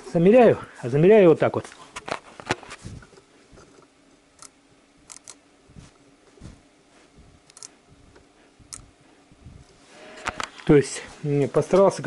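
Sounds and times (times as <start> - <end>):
micrometer ratchet clicking: 5.1 - 5.4.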